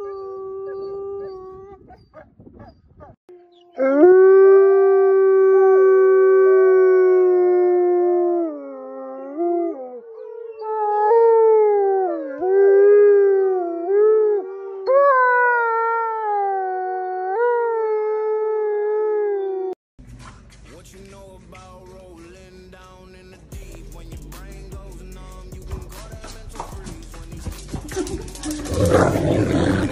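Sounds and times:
wolf howling: 3.6s - 19.8s, 27.9s - 29.9s.

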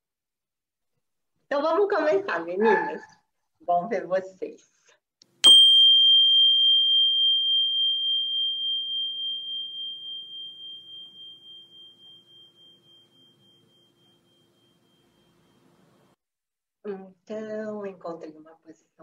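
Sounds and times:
small metal bell ringing: 5.4s - 16.1s.

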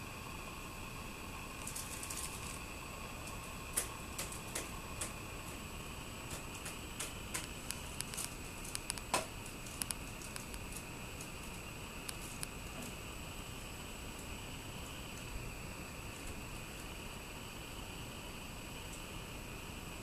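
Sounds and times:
faint high whine: 0.0s - 20.0s
steady hiss: 0.0s - 20.0s
small clicks and ticks: 1.6s - 5.6s, 6.2s - 13.0s.

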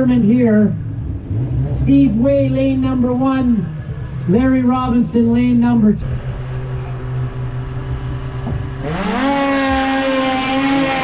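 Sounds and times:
snowmobile engines revving: 0.0s - 11.0s.

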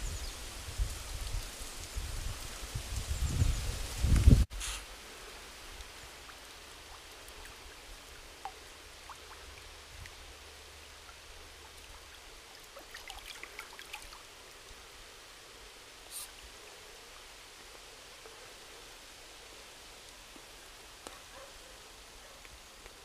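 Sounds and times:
stream hissing: 0.0s - 23.0s
water dripping: 4.0s - 21.5s.

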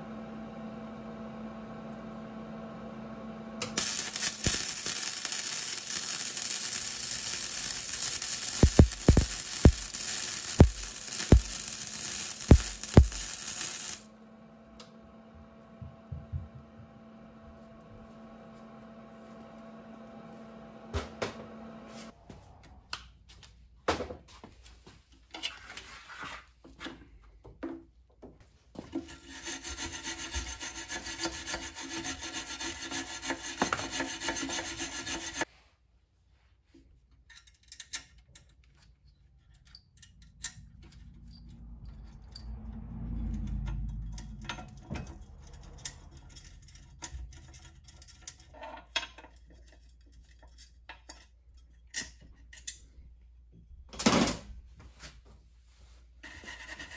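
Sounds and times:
loud rubbing or scratching: 3.8s - 14.0s, 29.1s - 35.4s, 56.2s - 56.9s.

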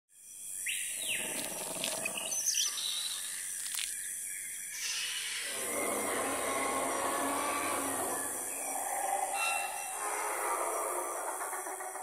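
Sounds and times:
bird calls and chirps: 0.2s - 12.0s.

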